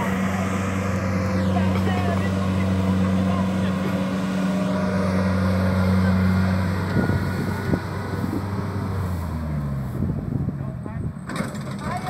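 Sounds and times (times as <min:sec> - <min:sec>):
harvester engine droning: 0:00.0 - 0:12.0
knocks and clatter: 0:11.2 - 0:12.0.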